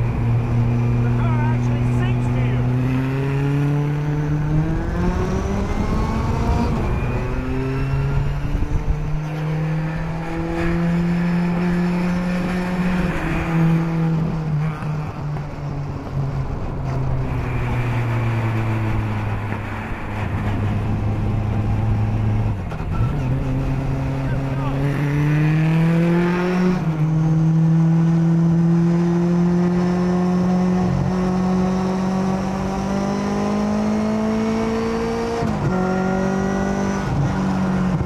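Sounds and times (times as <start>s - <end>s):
car engine accelerating: 0.0s - 38.0s.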